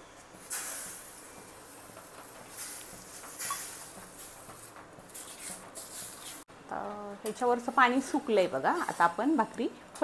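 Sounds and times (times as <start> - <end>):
water sizzling on a hot griddle: 0.4 - 6.4.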